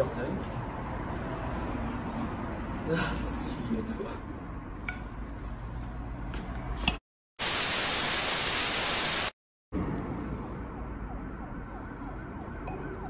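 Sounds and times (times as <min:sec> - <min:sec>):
white-noise static burst: 0:07.4 - 0:09.4
siren wailing: 0:10.6 - 0:13.0.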